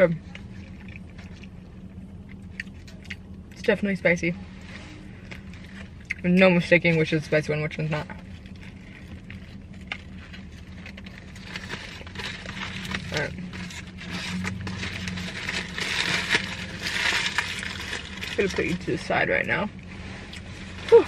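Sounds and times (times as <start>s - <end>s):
chewing crispy food: 0.2s - 3.6s, 8.0s - 18.8s
paper wrapper crinkling: 8.2s - 19.1s.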